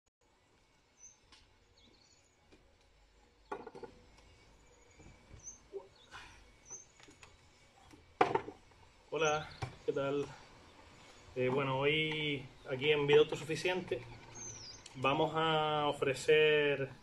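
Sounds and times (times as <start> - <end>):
bird chirps: 0.9 - 2.5, 3.4 - 7.2, 9.2 - 15.6
objects knocking on a table: 3.5 - 4.0, 8.2 - 8.6.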